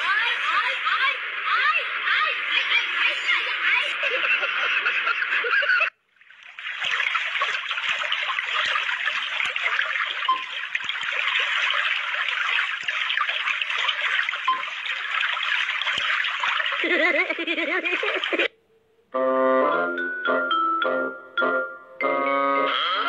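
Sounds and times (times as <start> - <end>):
water trickling and babbling: 0.0 - 18.6.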